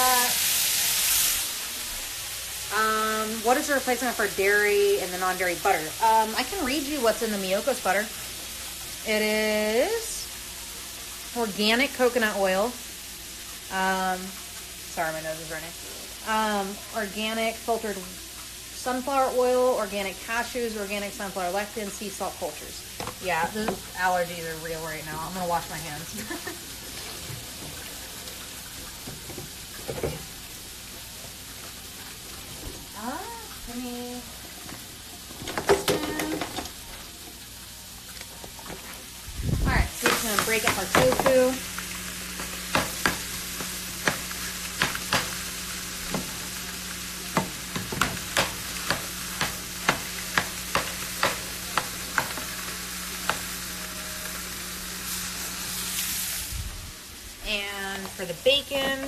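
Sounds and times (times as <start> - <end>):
tofu sizzling in pan: 0.0 - 59.0.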